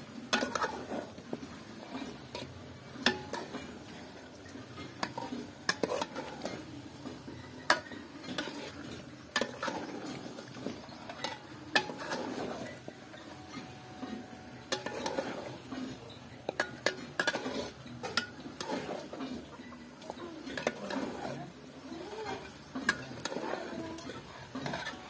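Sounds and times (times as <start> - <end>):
metal spoon scraping and clinking pot: 0.2 - 25.0.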